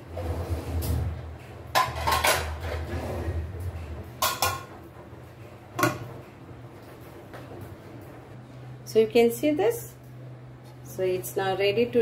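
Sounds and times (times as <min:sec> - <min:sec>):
steel kitchenware clanking: 0:01.7 - 0:03.0, 0:04.0 - 0:04.8.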